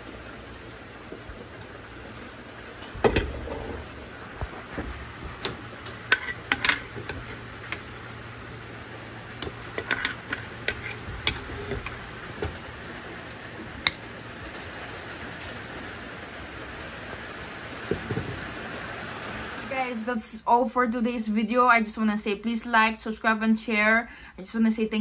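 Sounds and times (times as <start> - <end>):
low steady hum: 0.0 - 25.0
plastic spoon scraping a frying pan: 4.5 - 7.9, 9.4 - 12.0.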